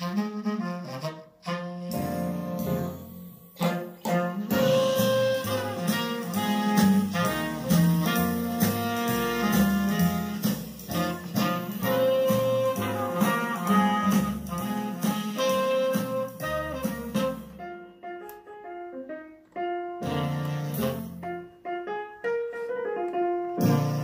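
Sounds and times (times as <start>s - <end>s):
recorded music over loudspeakers: 1.9s - 17.8s, 20.0s - 21.4s, 23.5s - 24.0s.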